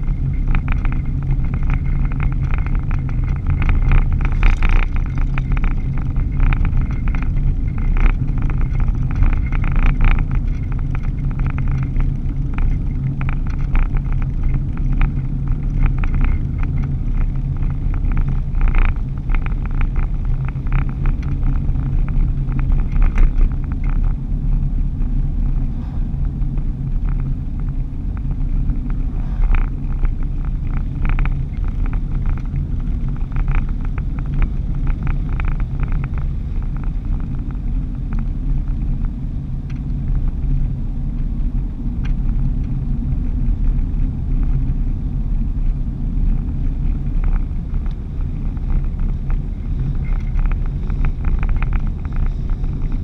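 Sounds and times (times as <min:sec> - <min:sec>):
light rattling: 0:00.0 - 0:24.2
vehicle engine and road drone: 0:00.0 - 0:53.0.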